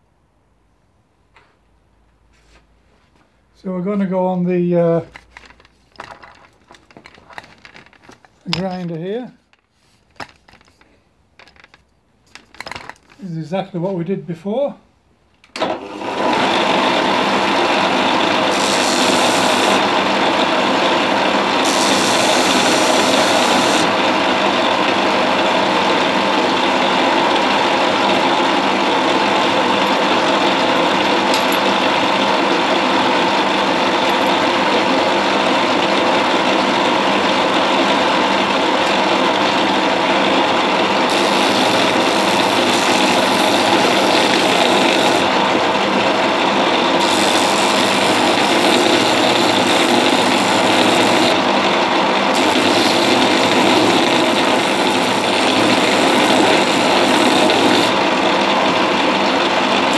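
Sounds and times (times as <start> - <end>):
bench sander running: 15.7 - 59.9
sander grinding horn: 16.4 - 20.3, 21.4 - 24.0, 41.1 - 45.4, 47.0 - 51.5, 52.3 - 58.0.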